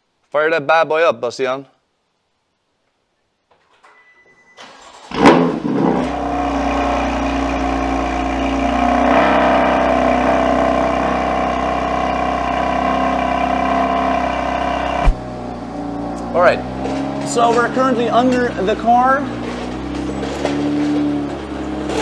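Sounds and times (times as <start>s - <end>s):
car engine starting and idling: 4.6s - 22.0s.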